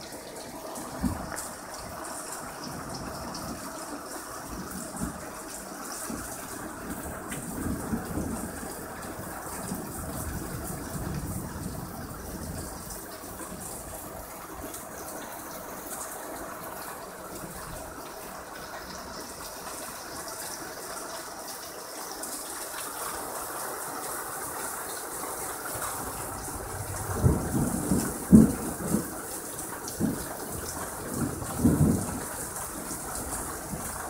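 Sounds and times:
heavy rain pouring: 0.0s - 34.0s
thunder rumbling: 4.5s - 15.5s, 25.6s - 34.0s.

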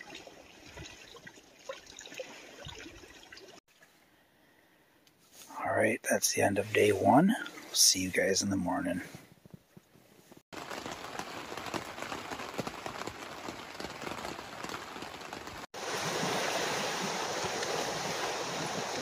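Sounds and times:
rain pattering on tent: 10.5s - 19.0s
wind and rain rushing: 10.5s - 19.0s.

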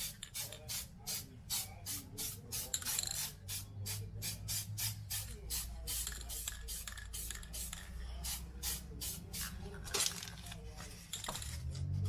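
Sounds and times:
spray paint can hissing: 0.0s - 9.6s.

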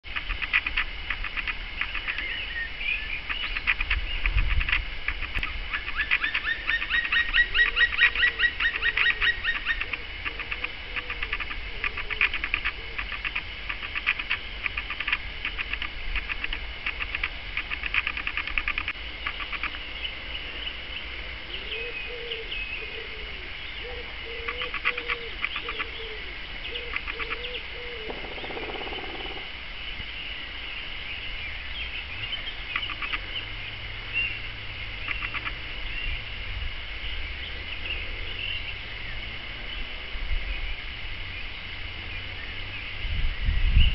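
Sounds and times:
bird lower arched call: 5.7s - 15.2s, 21.4s - 29.5s, 35.0s - 35.6s.

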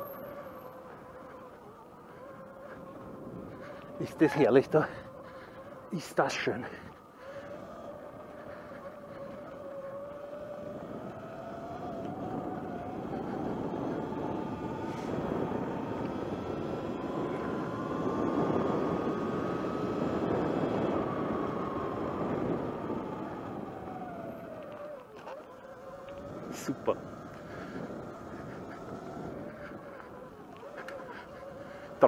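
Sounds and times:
electric motor whining: 0.0s - 32.0s
tyres rumbling on gravel: 22.2s - 32.0s.

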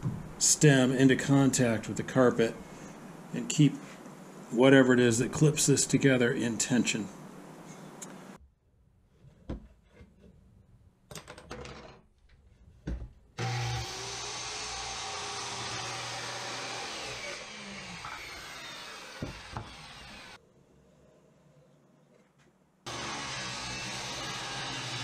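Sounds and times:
circular saw cutting wood: 13.4s - 20.4s, 22.9s - 25.0s.

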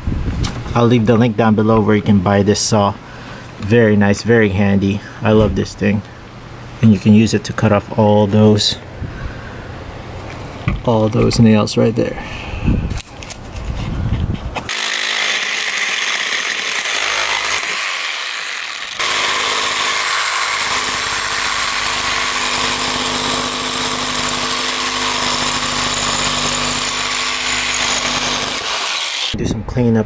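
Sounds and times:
reciprocating saw cutting nails: 14.6s - 29.4s.

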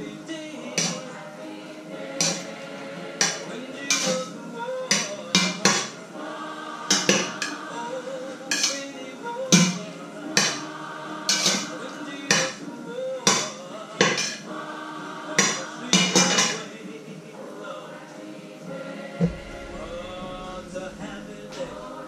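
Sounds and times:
music with singing: 0.0s - 22.0s
utensil scraping steel pot: 0.7s - 1.2s, 2.2s - 2.6s, 3.2s - 4.3s, 4.9s - 6.0s, 6.9s - 7.7s, 8.4s - 8.9s, 9.5s - 10.7s, 11.3s - 12.6s, 13.3s - 14.5s, 15.4s - 16.6s.

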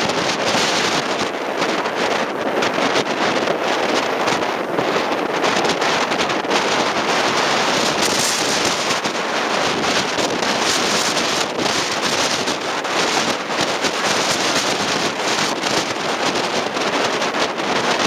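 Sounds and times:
rough sea waves breaking: 0.0s - 18.0s
strong wind buffeting microphone: 0.0s - 18.0s.

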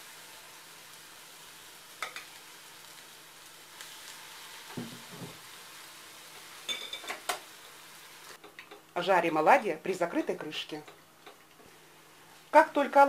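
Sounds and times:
batter sizzling in oil: 0.0s - 8.8s.

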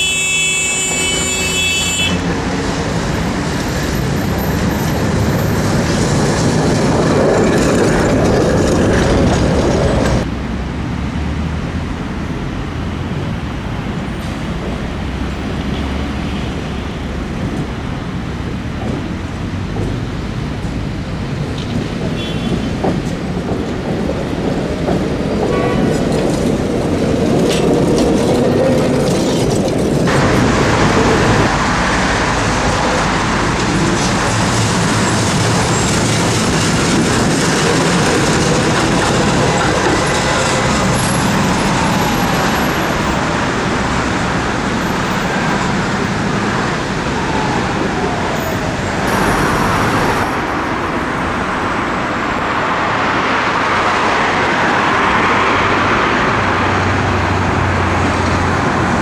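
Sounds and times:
road traffic: 0.0s - 59.0s
tram rumbling on rails: 0.0s - 59.0s.

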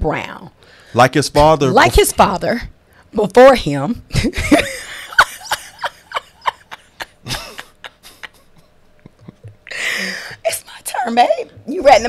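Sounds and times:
woman laughing in stifled bursts: 4.2s - 10.3s.

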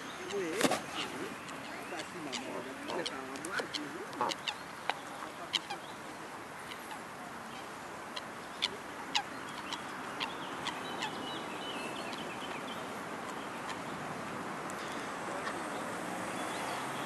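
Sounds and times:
bills plucking grass clicks: 0.2s - 5.0s
high twittering bird call: 8.5s - 13.8s.

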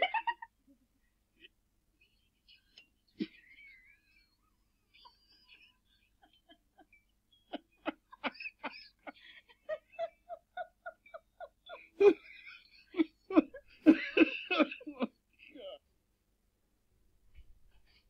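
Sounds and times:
person laughing in stifled bursts: 7.5s - 15.7s.

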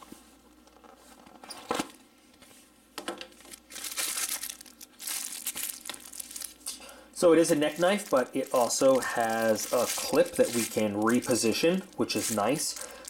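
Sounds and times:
plastic bag crinkling: 3.3s - 13.0s.

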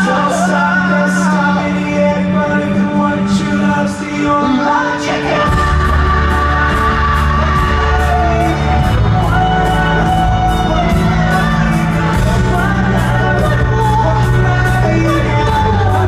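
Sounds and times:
live pop-rock band: 0.0s - 16.0s
person singing long notes: 0.0s - 16.0s
deep bass notes: 5.1s - 16.0s.

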